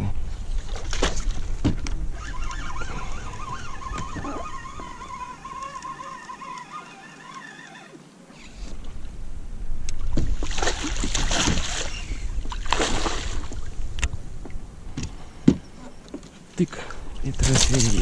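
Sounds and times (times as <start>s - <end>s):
wavering high whine: 1.9s - 8.5s.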